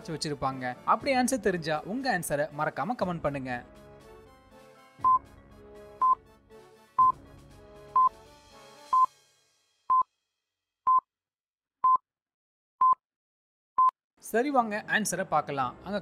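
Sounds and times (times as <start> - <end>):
soft background music: 0.0 - 9.2, 14.2 - 16.0.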